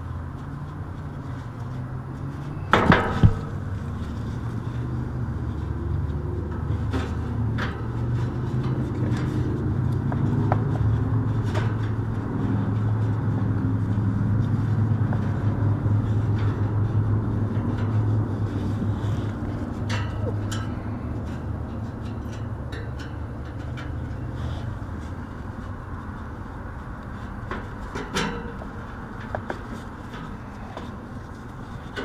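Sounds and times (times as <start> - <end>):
steady low rumble: 0.0 - 32.0
sharp metallic knocks: 2.6 - 3.8.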